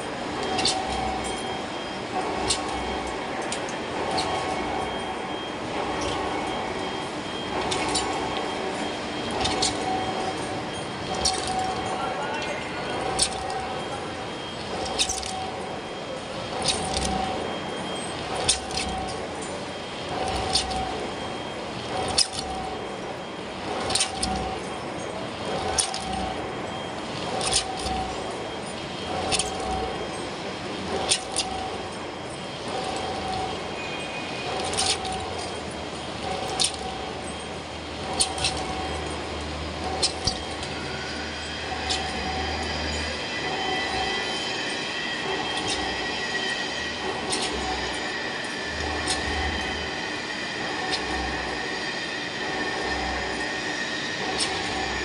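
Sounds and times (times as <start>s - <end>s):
steady lathe machine noise: 0.0s - 55.0s
metallic clink and ringing tone: 31.0s - 50.2s.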